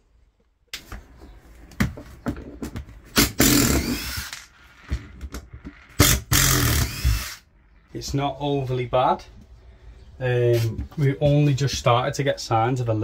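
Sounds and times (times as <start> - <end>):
cordless drill running: 3.2 - 4.5, 6.0 - 7.4.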